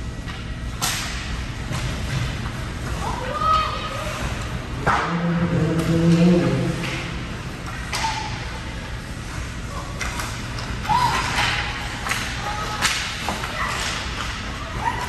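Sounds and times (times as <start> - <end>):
hockey sticks and puck clacking: 4.8 - 8.6, 9.3 - 15.0.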